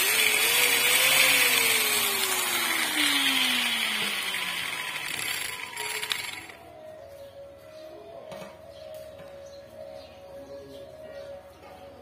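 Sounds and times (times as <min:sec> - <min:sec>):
electric angle grinder winding down: 0:00.0 - 0:06.6.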